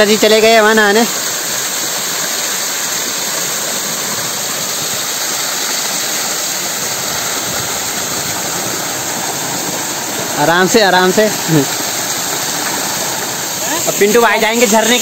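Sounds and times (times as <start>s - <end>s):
waterfall pouring into pool: 0.0s - 15.0s.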